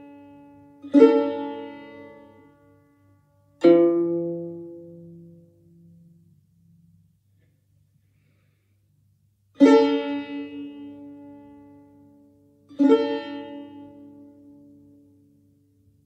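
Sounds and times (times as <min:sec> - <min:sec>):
plucked lute notes ringing: 0:00.0 - 0:07.0, 0:09.6 - 0:15.3.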